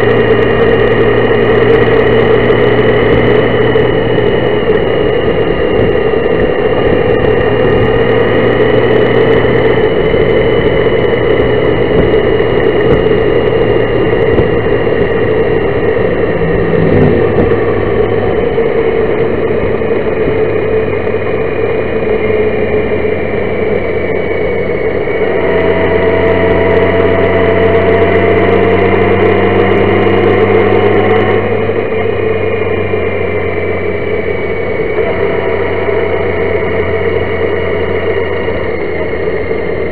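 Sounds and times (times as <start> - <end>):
motorcycle engine drone: 0.0 - 39.9
rushing air: 2.8 - 21.0.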